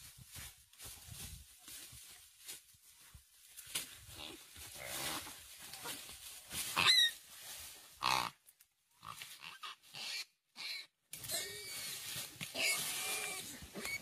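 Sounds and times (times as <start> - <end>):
piglet squealing: 12.6 - 14.0.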